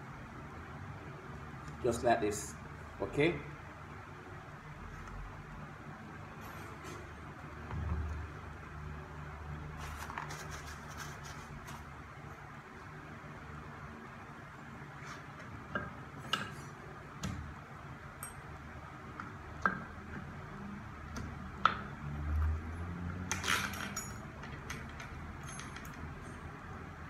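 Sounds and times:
small metal parts clinking: 0:23.3 - 0:26.4.

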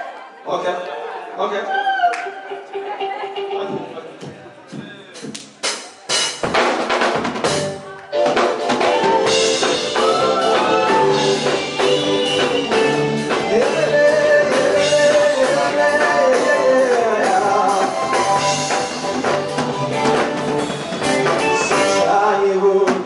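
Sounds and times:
live band playing: 0:00.8 - 0:23.0.

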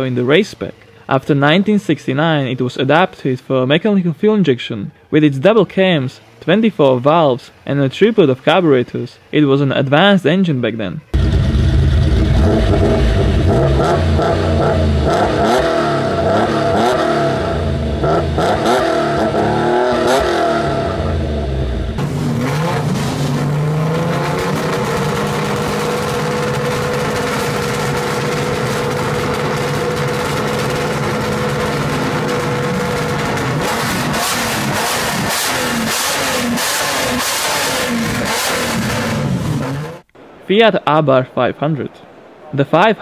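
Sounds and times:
race car engine warming up: 0:11.1 - 0:40.2
car engine idling and revving: 0:11.2 - 0:40.1.

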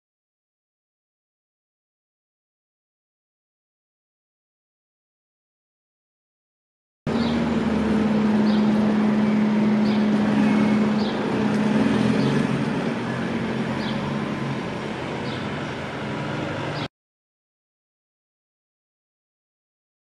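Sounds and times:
road traffic hum: 0:07.1 - 0:16.9
sparrows chirping: 0:07.1 - 0:16.9.

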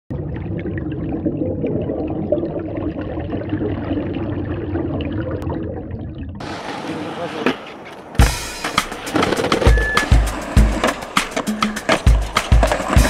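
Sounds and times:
muffled water: 0:00.1 - 0:07.0.

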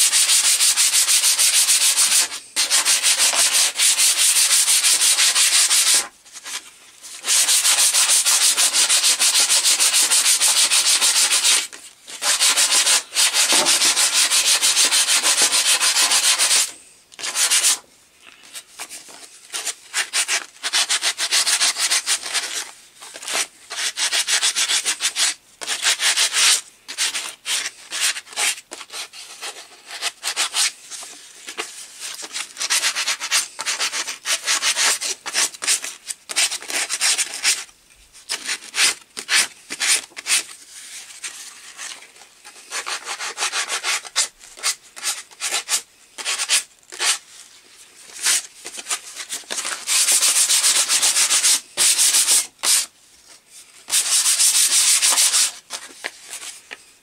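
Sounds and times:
sanding wood by hand: 0:00.0 - 0:06.1, 0:07.2 - 0:17.8, 0:49.7 - 0:52.9, 0:53.9 - 0:55.6.

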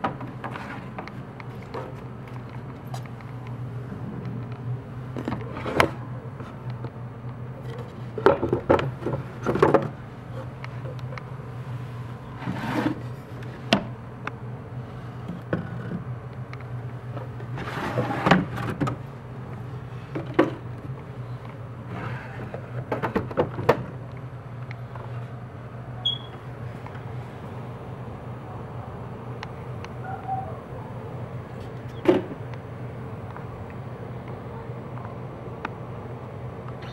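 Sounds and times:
steady low hum: 0:00.0 - 0:36.9
drawers sliding scrapes: 0:00.4 - 0:01.0, 0:05.4 - 0:06.0, 0:12.4 - 0:13.8, 0:17.6 - 0:18.9, 0:21.9 - 0:23.1.

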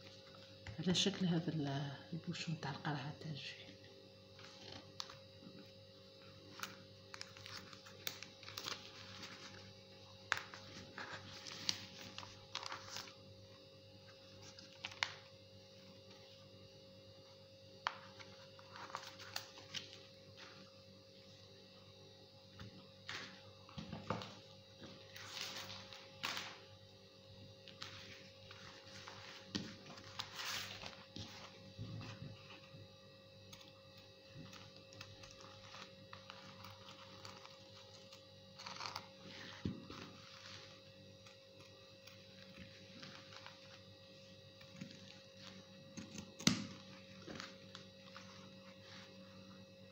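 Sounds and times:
faint steady hum: 0:00.0 - 0:49.9
paper rustling: 0:06.5 - 0:09.7, 0:10.3 - 0:13.2, 0:18.0 - 0:20.6, 0:25.0 - 0:26.6, 0:27.7 - 0:32.7.

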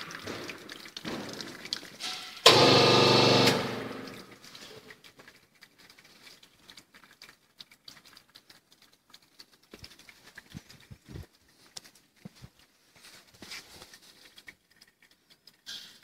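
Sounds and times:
hydraulic pump motor humming: 0:02.5 - 0:04.2.

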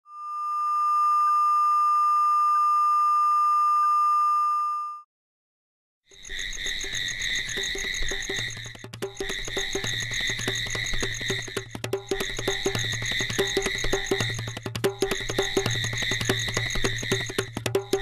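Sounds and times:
single-pitch test tone: 0:00.0 - 0:05.0
music: 0:07.5 - 0:18.0.

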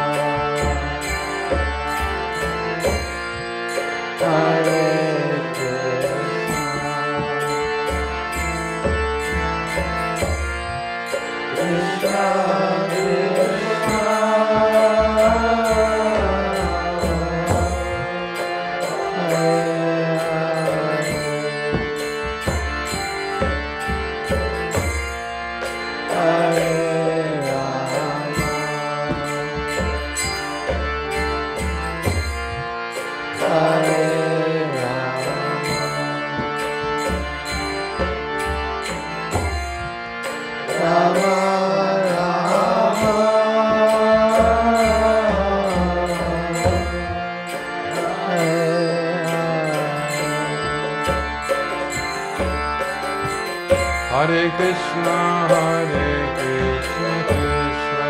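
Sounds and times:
harmonium drone: 0:00.0 - 0:58.0
voices chanting a melody: 0:11.5 - 0:21.8.

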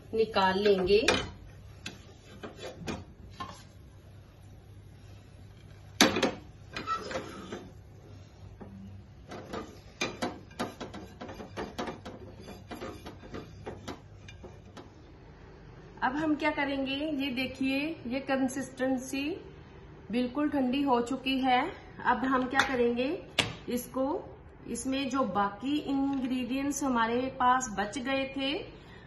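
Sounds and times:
spatula scraping frying pan: 0:01.7 - 0:03.8, 0:06.7 - 0:07.8, 0:09.3 - 0:14.9.

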